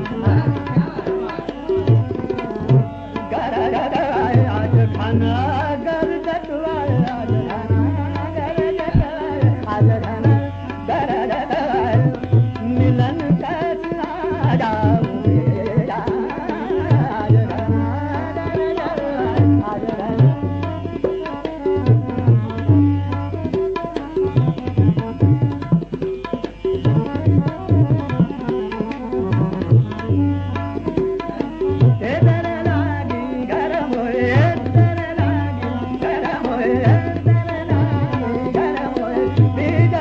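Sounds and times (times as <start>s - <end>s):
harmonium: 0.0s - 40.0s
tabla playing: 0.0s - 40.0s
tanpura drone: 0.0s - 40.0s
classical vocal singing: 3.2s - 21.1s, 31.8s - 40.0s
deep tabla strokes: 6.8s - 17.7s.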